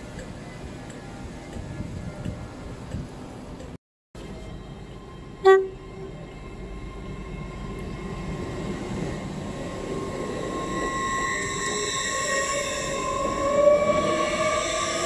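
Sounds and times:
steady whine: 0.0 - 15.0
train running past: 0.0 - 15.0
train horn toot: 5.4 - 6.3, 10.7 - 15.0.

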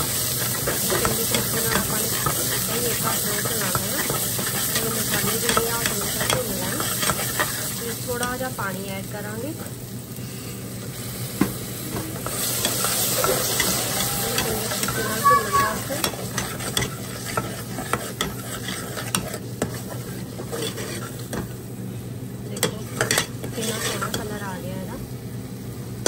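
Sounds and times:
masala sizzling: 0.0 - 26.0
ladle scraping a pot: 16.4 - 21.2, 23.0 - 24.1.

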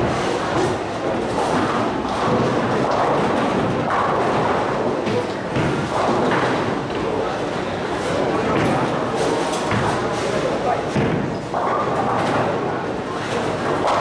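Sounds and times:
bowling pins crashing: 0.0 - 7.2
bowling balls rolling and thudding: 0.0 - 14.0.

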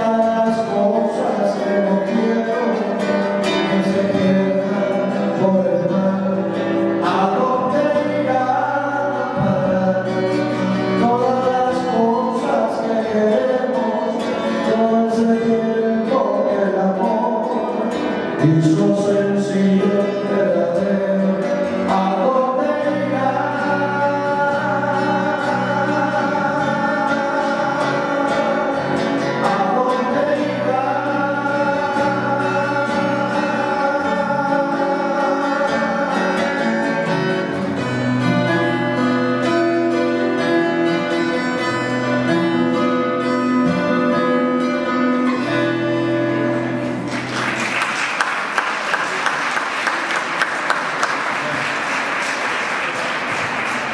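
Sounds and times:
two men singing in harmony: 0.0 - 37.6
plucked acoustic guitars: 0.0 - 53.9
applause: 46.8 - 53.9.

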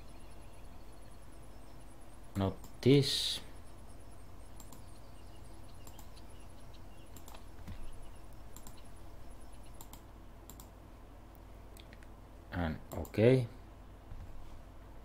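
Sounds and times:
low electrical hum: 0.0 - 15.0
computer mouse clicks: 4.5 - 5.0, 5.7 - 6.3, 7.0 - 8.9, 9.5 - 10.8, 12.9 - 13.2.

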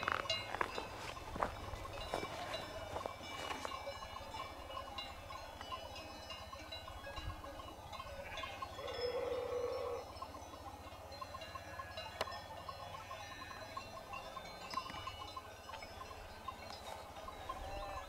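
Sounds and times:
sheep bells tinkling: 0.0 - 18.0
sheep bleating: 17.3 - 18.0.

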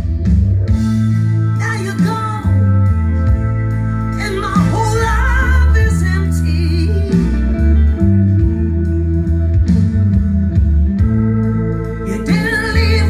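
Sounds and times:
loud rock song through speakers: 0.0 - 13.0
singer's voice with vibrato: 12.1 - 13.0.

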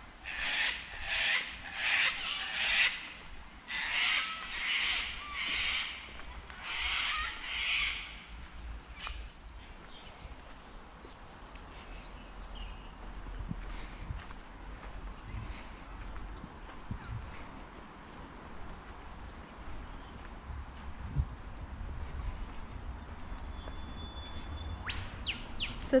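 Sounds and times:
cockatoos screeching: 3.7 - 6.0.

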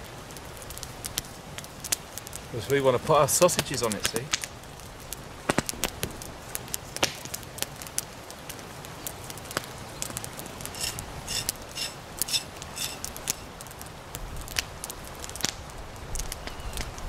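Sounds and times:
campfire crackling and popping: 0.0 - 17.0
knife scraping bark: 10.6 - 13.5.

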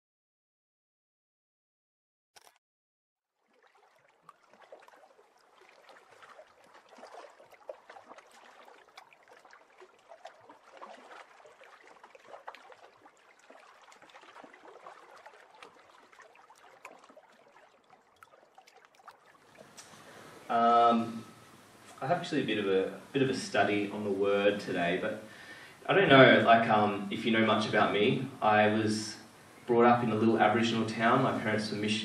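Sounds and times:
water lapping and dripping: 3.3 - 28.1.

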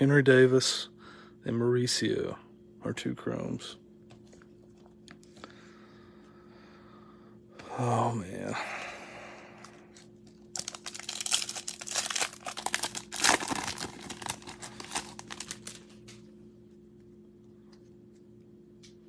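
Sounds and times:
foil wrapper crinkling and tearing: 9.7 - 16.1.

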